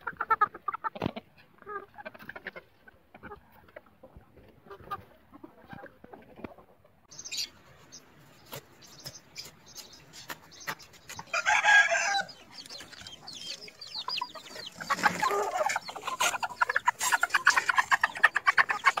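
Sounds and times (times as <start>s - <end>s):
chickens clucking: 0.0s - 19.0s
loud pitched chicken call: 11.3s - 12.4s.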